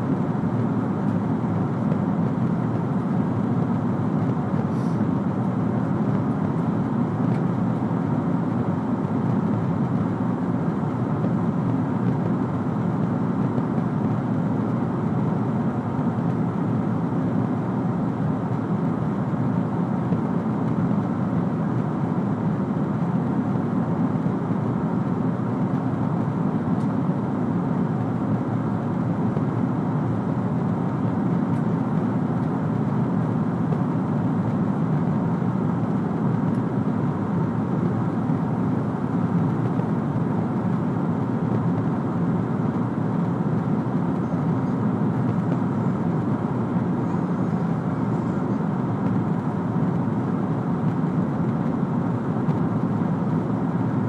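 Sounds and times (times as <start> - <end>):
airflow rushing in cabin: 0.0 - 54.0
jet engines droning: 0.0 - 54.0.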